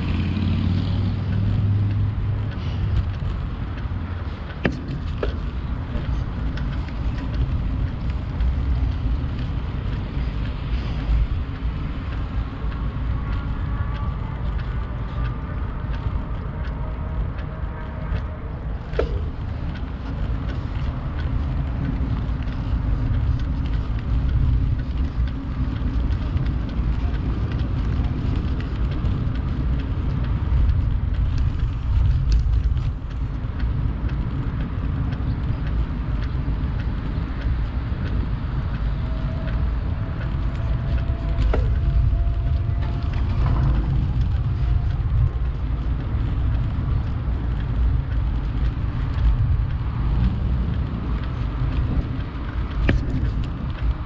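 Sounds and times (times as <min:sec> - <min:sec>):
bicycle road noise: 0:00.0 - 0:54.0
wind buffeting microphone: 0:00.0 - 0:54.0
faint clicks: 0:01.3 - 0:54.0.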